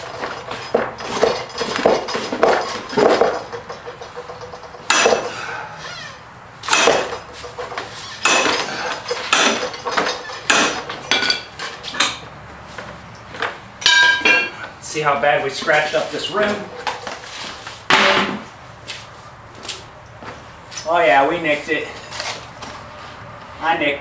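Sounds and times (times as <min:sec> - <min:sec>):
steel bar scraping metal rim: 0:02.8 - 0:10.9.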